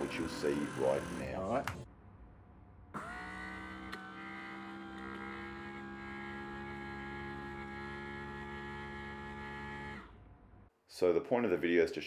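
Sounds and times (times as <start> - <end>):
electric window motor hum: 0.0 - 1.9, 3.0 - 10.2.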